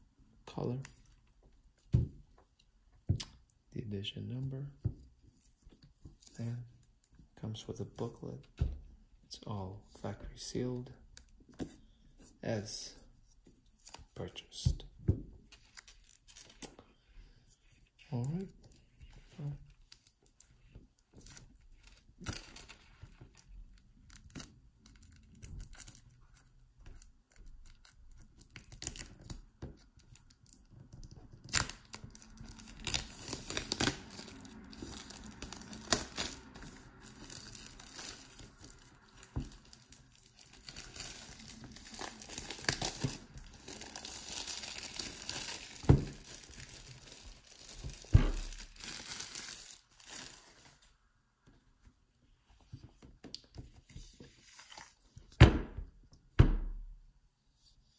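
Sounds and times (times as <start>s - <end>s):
plastic shrink-wrap crackling: 31.3s - 50.7s.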